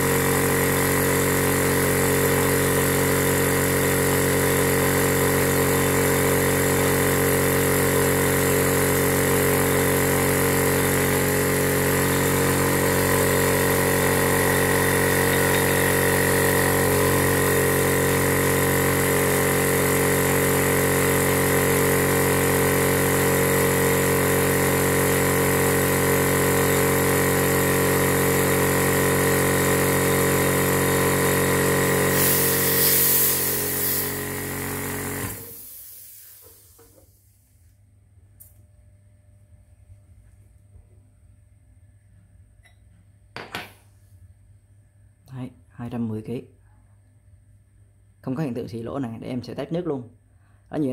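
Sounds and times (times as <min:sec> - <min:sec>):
air compressor humming: 0:00.0 - 0:37.7
air hissing: 0:32.0 - 0:37.2.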